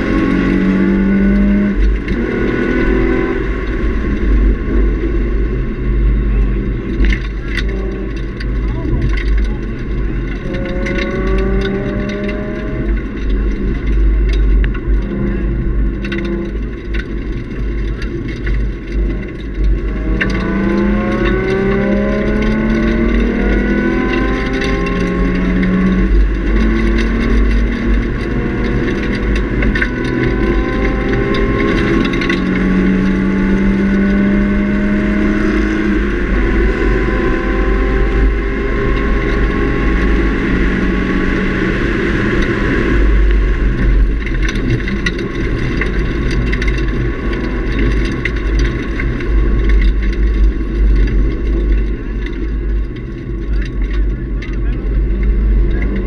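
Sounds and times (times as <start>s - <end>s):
car engine revving: 0.0s - 56.0s
road and wind rumble: 0.0s - 56.0s.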